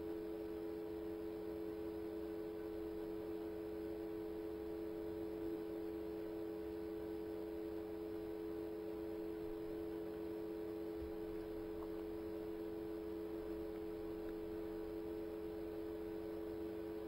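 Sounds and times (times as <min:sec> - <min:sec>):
steady two-tone hum: 0:00.0 - 0:17.0.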